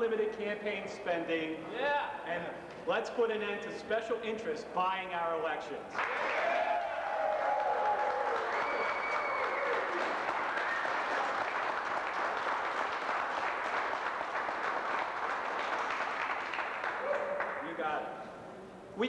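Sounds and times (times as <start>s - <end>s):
crowd applauding and cheering: 6.0s - 17.8s.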